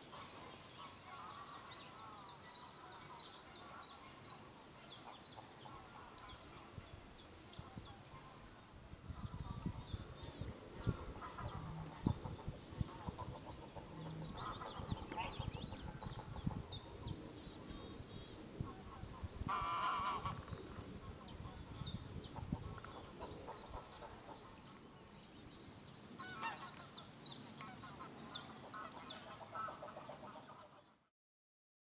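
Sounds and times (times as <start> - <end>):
geese honking: 0.0 - 6.7, 10.8 - 17.0, 18.6 - 21.8, 22.4 - 24.8, 26.2 - 27.0, 27.6 - 30.9.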